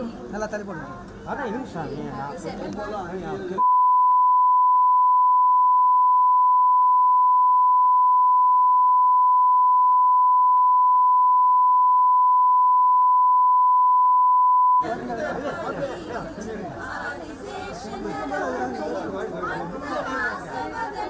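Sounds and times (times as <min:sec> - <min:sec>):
steady test tone beep: 0:03.6 - 0:14.8
crowd chatter: 0:14.8 - 0:21.0.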